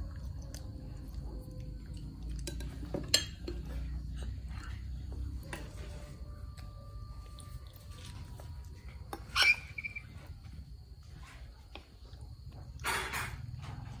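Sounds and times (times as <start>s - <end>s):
spoons clinking against bowls: 2.3s - 4.8s.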